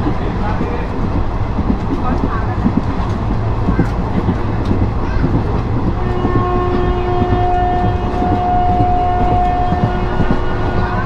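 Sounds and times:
train wheels rumbling on track: 0:00.0 - 0:11.0
train horn long note: 0:06.0 - 0:11.0.

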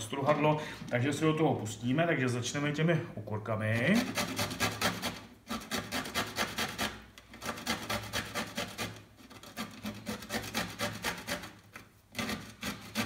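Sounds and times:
gherkin rasping on grater: 0:03.6 - 0:13.0.

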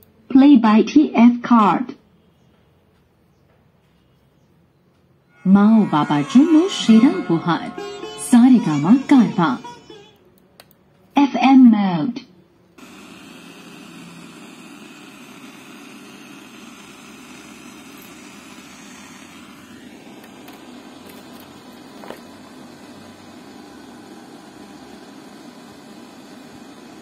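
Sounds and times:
radio static hiss: 0:12.8 - 0:24.8.

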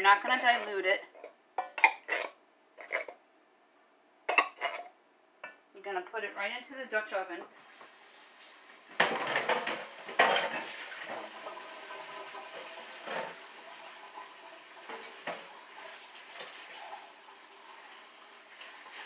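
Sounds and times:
metal cans and utensils clattering: 0:00.2 - 0:03.2, 0:04.3 - 0:04.9, 0:09.0 - 0:11.6, 0:12.5 - 0:13.4.

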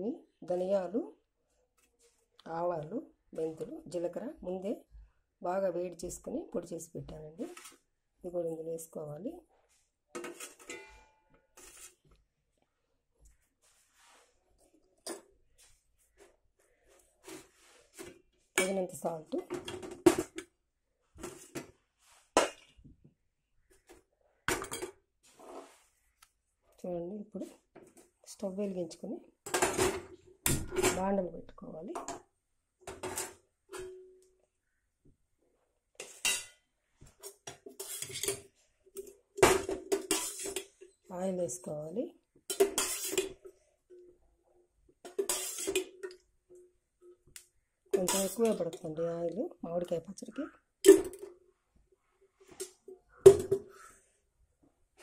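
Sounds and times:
metal spoon scraping steel bowl: 0:10.2 - 0:12.0, 0:37.7 - 0:38.4, 0:40.0 - 0:40.7, 0:42.5 - 0:43.4, 0:45.1 - 0:46.1, 0:48.0 - 0:48.9.

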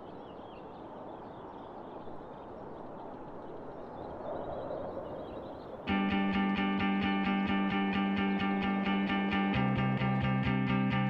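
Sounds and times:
guitar music: 0:05.9 - 0:11.0.

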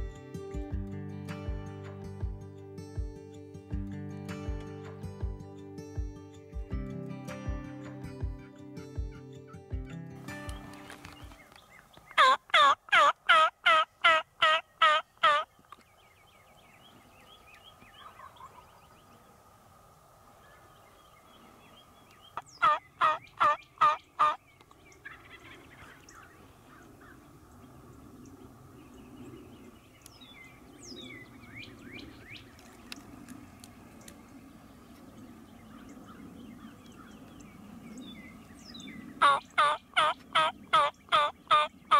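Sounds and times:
turkey yelping: 0:12.2 - 0:15.5, 0:22.6 - 0:24.4, 0:39.2 - 0:41.7.

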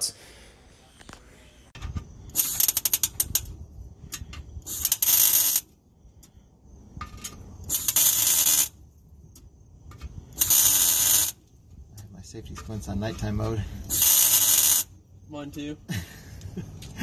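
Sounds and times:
welding arc crackling: 0:02.3 - 0:03.5, 0:04.6 - 0:05.7, 0:07.7 - 0:08.8, 0:10.4 - 0:11.4, 0:13.9 - 0:15.0.

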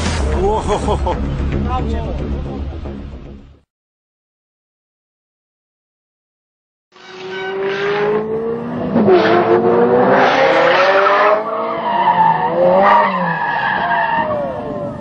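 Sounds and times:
car engine revving hard: 0:07.5 - 0:13.3.

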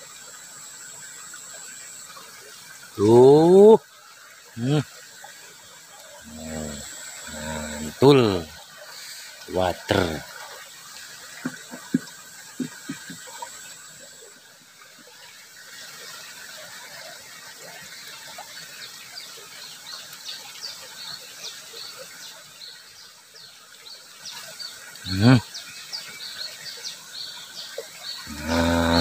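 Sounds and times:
ditch water flowing: 0:00.0 - 0:22.5, 0:27.6 - 0:29.0
knocks and squeaks of fish handling: 0:11.4 - 0:13.4.

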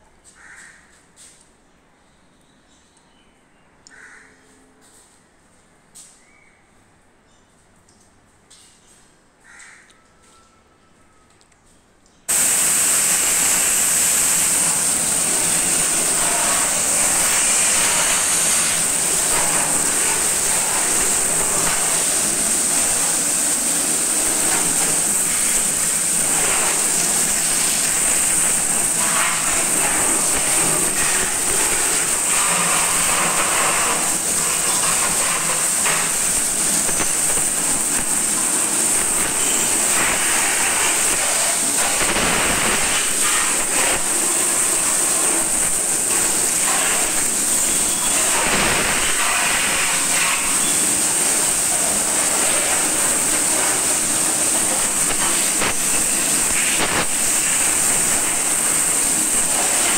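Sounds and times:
pressure washer jet hissing: 0:12.3 - 0:59.9
water spattering on bodywork: 0:12.3 - 0:59.9.

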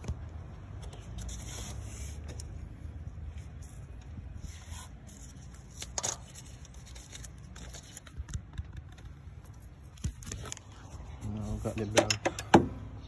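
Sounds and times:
rubber belt rubbing and scraping: 0:03.3 - 0:08.1, 0:09.4 - 0:11.9.

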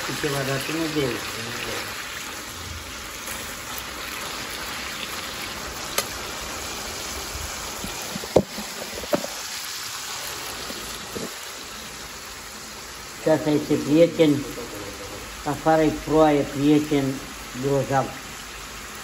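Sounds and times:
oil popping: 0:00.0 - 0:12.2
meat sizzling in oil: 0:00.0 - 0:19.0.

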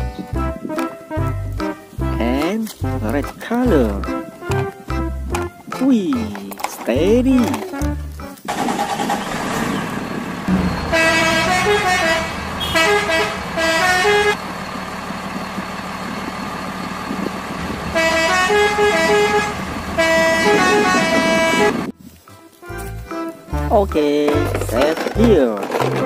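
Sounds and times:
truck engine running: 0:07.0 - 0:22.0
musical horn honking: 0:10.5 - 0:14.4, 0:17.8 - 0:22.0.

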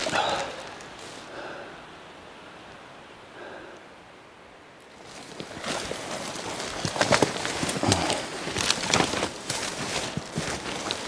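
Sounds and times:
hurried footsteps: 0:05.0 - 0:11.0.

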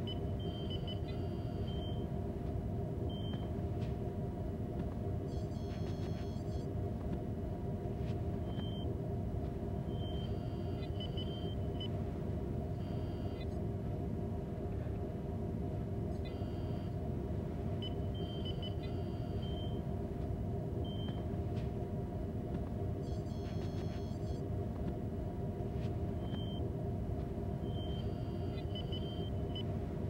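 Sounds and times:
low engine-like hum: 0:00.0 - 0:30.0
electronic beeps and chirps: 0:09.9 - 0:11.9, 0:23.0 - 0:24.4.

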